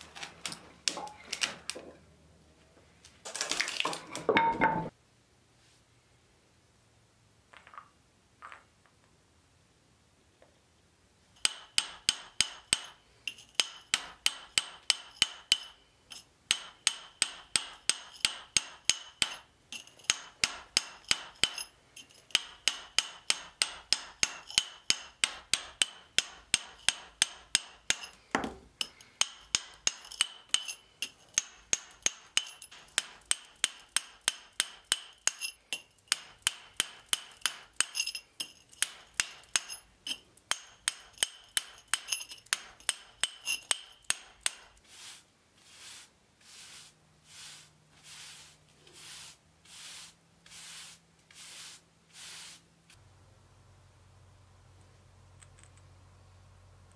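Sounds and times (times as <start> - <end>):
hammer striking chisel on stone: 11.4 - 44.8.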